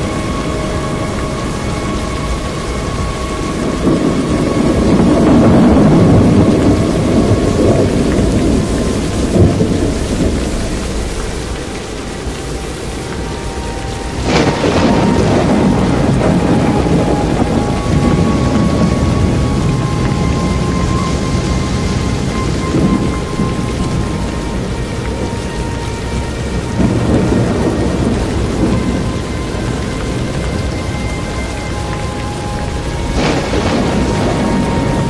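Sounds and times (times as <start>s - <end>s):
tornado roaring: 0.0s - 35.0s.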